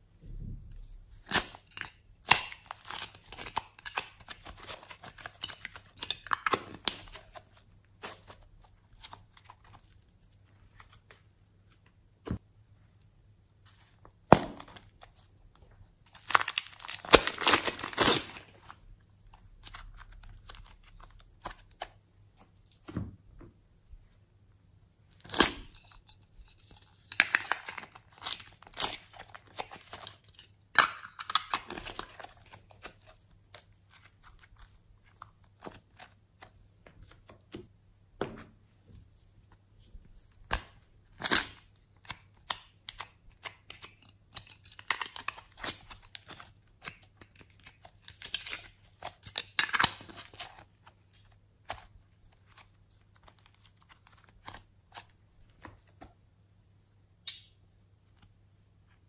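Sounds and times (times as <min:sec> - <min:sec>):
clay peeling and tearing: 0:01.2 - 0:11.1, 0:16.1 - 0:22.9, 0:25.1 - 0:30.6, 0:40.2 - 0:56.1
plastic mould clicks and crackles: 0:40.5 - 0:51.9.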